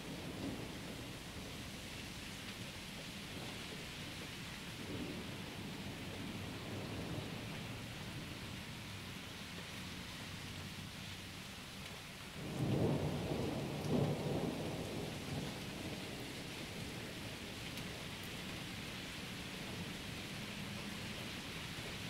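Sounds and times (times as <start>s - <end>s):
steady rain falling: 0.0s - 22.0s
thunder rumbling: 12.4s - 17.4s.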